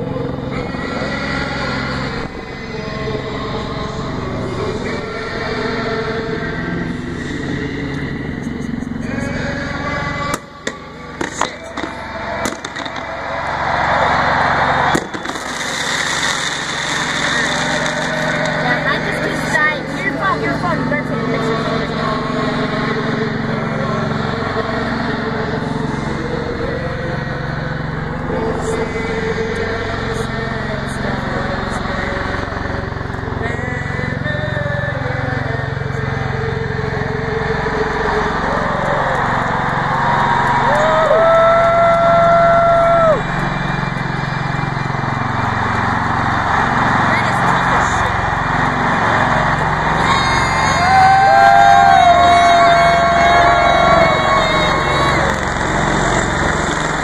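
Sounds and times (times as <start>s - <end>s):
drone propellers whirring: 0.0s - 57.0s
stadium crowd cheering: 0.0s - 57.0s
fireworks bangs: 10.4s - 13.6s, 14.8s - 18.8s.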